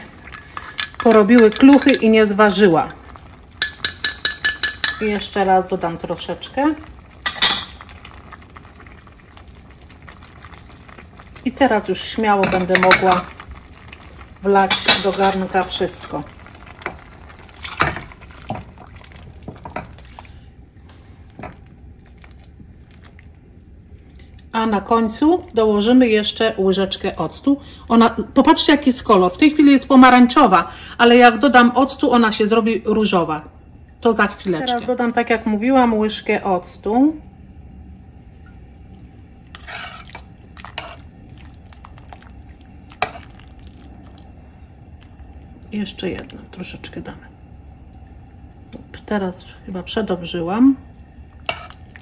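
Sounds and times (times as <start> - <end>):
ladle scraping pot: 0.0 - 2.2, 39.5 - 41.5, 51.4 - 52.0
spoon clinking against pot: 3.6 - 5.3, 7.3 - 7.8, 12.4 - 13.3
liquid sloshing in pot: 6.5 - 24.5, 38.4 - 52.0
ladle stirring thick soup: 16.2 - 23.3, 39.5 - 44.4, 51.2 - 52.0
liquid sloshing: 16.2 - 24.4, 39.5 - 44.4.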